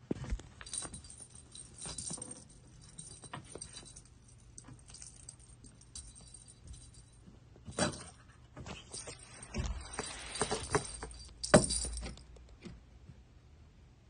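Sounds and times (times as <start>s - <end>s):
jingle ball rattling: 0.6s - 8.2s, 8.8s - 12.4s
soft scuffs on carpet: 8.8s - 12.0s.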